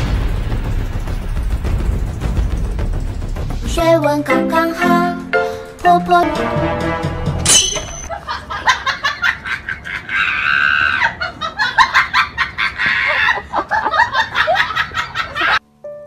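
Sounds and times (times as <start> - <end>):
person laughing hard: 8.1 - 15.6.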